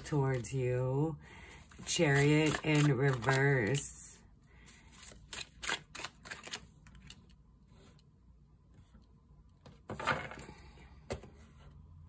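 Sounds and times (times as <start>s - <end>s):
cards shuffling: 1.7s - 3.8s, 4.9s - 7.4s.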